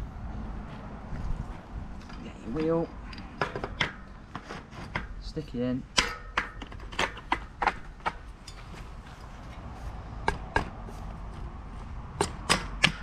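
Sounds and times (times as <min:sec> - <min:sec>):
bike wheel clicks and knocks: 0:02.6 - 0:04.1, 0:05.9 - 0:08.6, 0:12.2 - 0:13.0.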